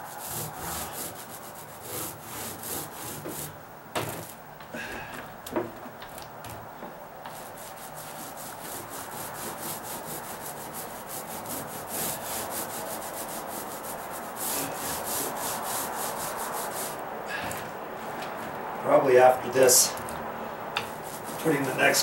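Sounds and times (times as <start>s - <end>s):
paint roller crackling on deck: 0.0s - 4.4s, 5.3s - 22.0s.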